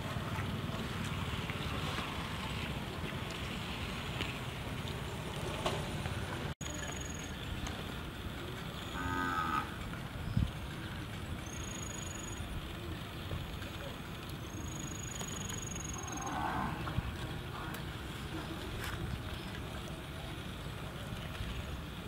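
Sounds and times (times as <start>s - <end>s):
outdoor background noise: 0.0s - 22.0s
cow mooing: 8.9s - 9.8s, 16.0s - 17.0s.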